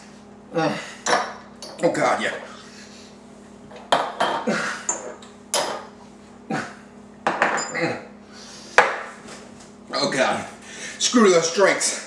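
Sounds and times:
shot glasses knocked on countertop: 3.9s - 4.4s, 7.2s - 7.7s.

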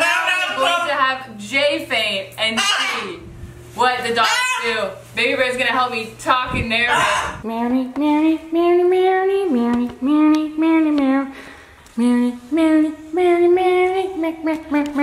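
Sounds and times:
high voice singing wordless melody: 6.2s - 15.0s.

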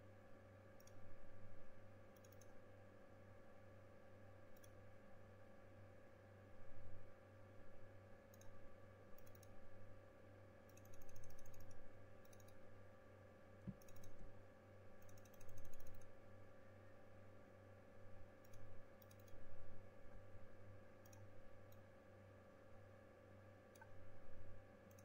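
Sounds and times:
low electrical hum: 0.0s - 25.0s
mouse and keyboard clicking: 2.2s - 2.5s, 9.2s - 9.5s, 10.7s - 12.6s, 13.7s - 14.2s, 15.0s - 16.1s, 18.4s - 19.4s.

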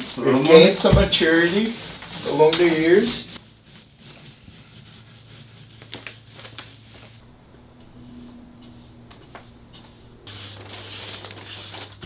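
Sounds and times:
paint roller rubbing: 0.0s - 12.0s
paint brush strokes: 0.2s - 12.0s
faint low hum: 6.9s - 10.3s.

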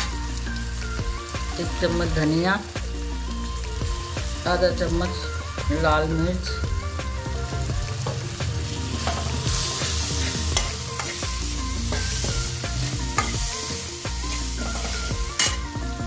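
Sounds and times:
vegetables sizzling in hot oil: 0.0s - 16.0s.

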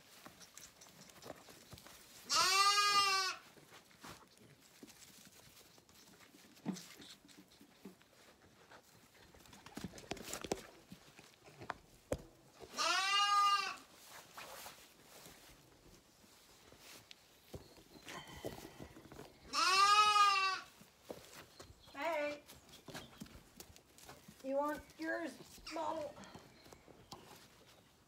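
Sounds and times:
lamb bleating: 2.3s - 3.4s, 12.7s - 13.8s, 19.5s - 20.7s.

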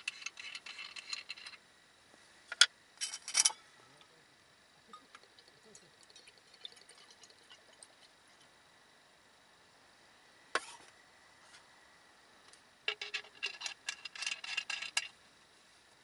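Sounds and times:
faint drips into steel cup: 4.9s - 8.5s.

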